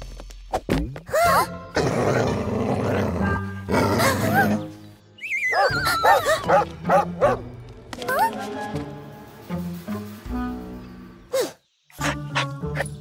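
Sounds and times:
background music: 0:00.7 - 0:13.0
cartoon dog barking: 0:12.0 - 0:12.9.

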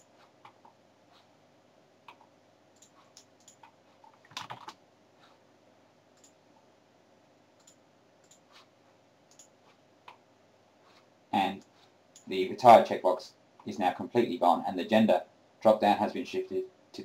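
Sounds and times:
computer mouse clicks: 0:02.1 - 0:04.8, 0:06.2 - 0:06.4, 0:07.6 - 0:08.6, 0:09.3 - 0:10.2.

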